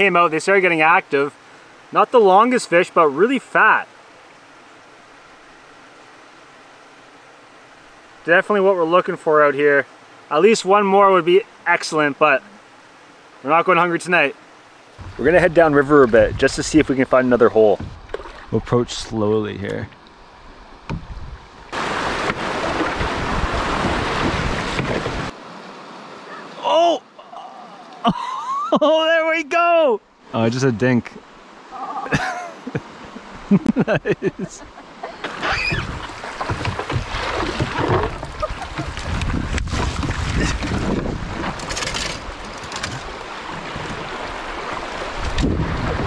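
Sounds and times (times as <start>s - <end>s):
calm water ambience: 0.0s - 46.0s
wind buffeting microphone: 15.0s - 17.0s, 22.4s - 25.3s, 35.7s - 46.0s
paddle splashes: 15.0s - 18.8s, 20.8s - 26.4s, 35.0s - 46.0s
whitewater rushing: 21.7s - 28.0s, 34.2s - 46.0s
branches scraping over canoe: 21.8s - 25.4s, 35.2s - 46.0s.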